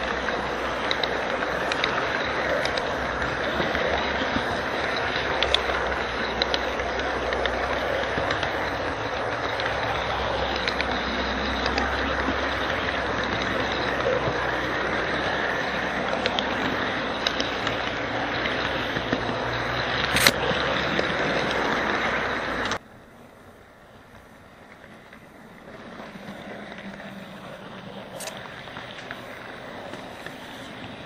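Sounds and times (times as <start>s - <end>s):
model train rolling on track: 0.0s - 31.0s
sharp click: 20.1s - 20.4s.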